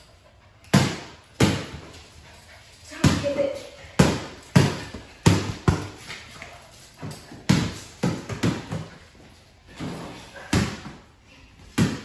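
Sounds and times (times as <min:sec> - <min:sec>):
ball bouncing on concrete: 0:03.0 - 0:12.0.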